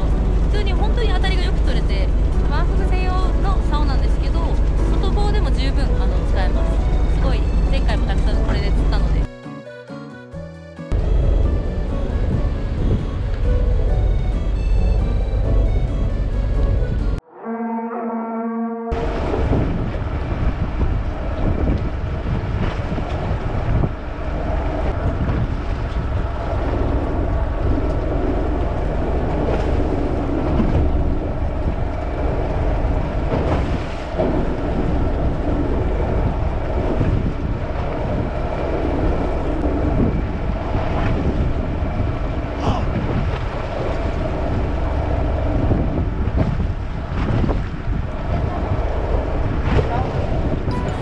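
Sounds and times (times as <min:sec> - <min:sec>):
boat engine running: 0:00.0 - 0:09.3, 0:10.9 - 0:17.3, 0:18.9 - 0:51.0
waves washing against hull: 0:00.0 - 0:09.3, 0:10.9 - 0:17.2, 0:18.9 - 0:51.0
wind buffeting microphone: 0:10.9 - 0:17.2, 0:18.9 - 0:51.0.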